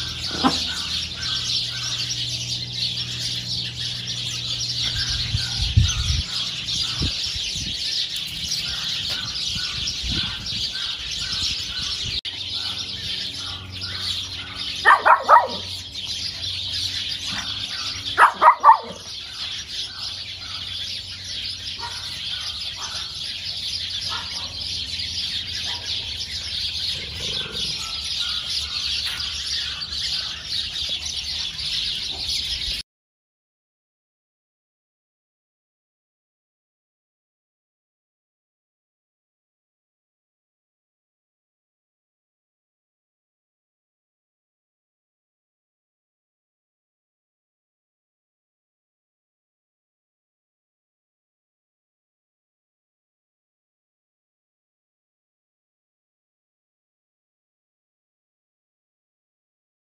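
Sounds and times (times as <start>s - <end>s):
birds chirping: 0.0s - 32.8s
small dog yapping: 0.1s - 2.0s, 14.5s - 15.7s, 17.3s - 19.1s, 21.8s - 23.1s, 24.1s - 24.6s.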